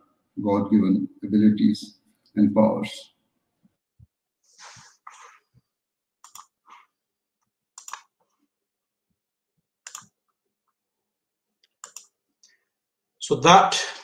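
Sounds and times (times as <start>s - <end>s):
computer mouse clicks: 6.2s - 6.6s, 7.8s - 8.2s, 9.8s - 10.2s, 11.6s - 12.2s.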